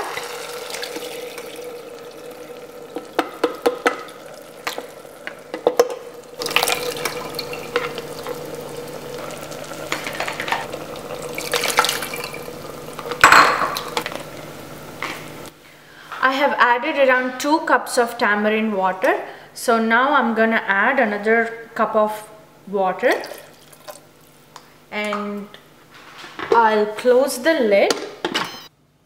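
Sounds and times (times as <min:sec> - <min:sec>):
liquid splashing into a pot: 0:00.0 - 0:14.4, 0:23.2 - 0:24.1
spatula knocking and scraping pot: 0:03.0 - 0:06.0.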